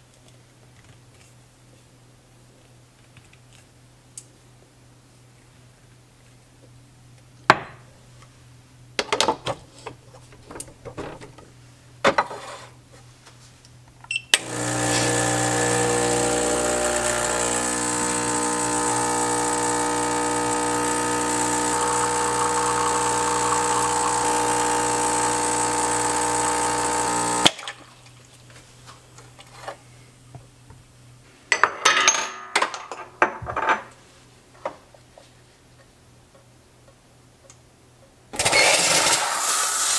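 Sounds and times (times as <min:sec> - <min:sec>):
espresso machine pump buzzing: 0:14.4 - 0:27.5.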